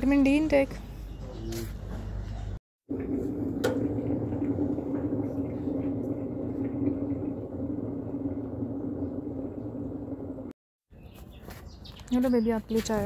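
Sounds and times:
mechanical hum: 2.9s - 10.6s.

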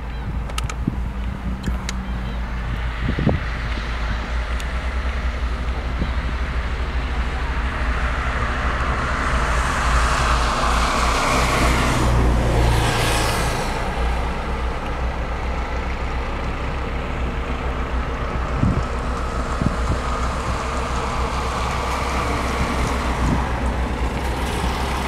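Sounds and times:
steady low rumble: 0.0s - 25.0s
motor vehicle passing: 2.4s - 15.6s.

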